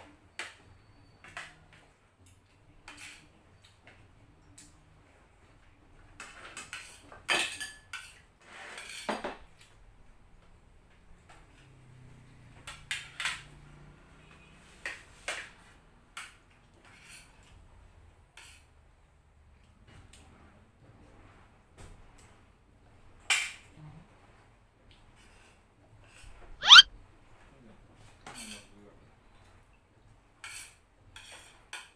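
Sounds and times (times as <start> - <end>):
cutlery clinking on plates: 6.2 - 9.4.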